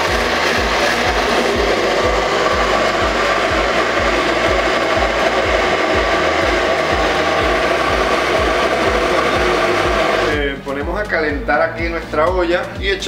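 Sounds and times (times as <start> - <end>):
electric blender running: 0.0 - 10.5.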